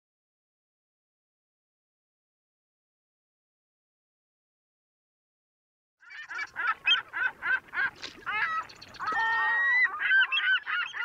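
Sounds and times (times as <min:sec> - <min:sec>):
geese honking: 0:06.1 - 0:11.0.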